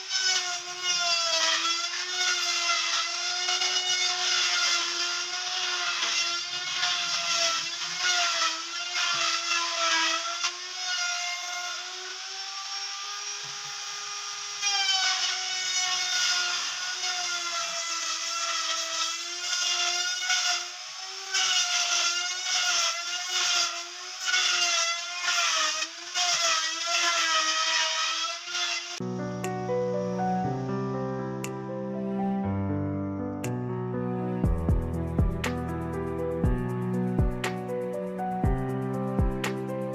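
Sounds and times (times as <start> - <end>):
router cutting wood: 0.0 - 29.4
wood router motor whine: 0.0 - 30.8.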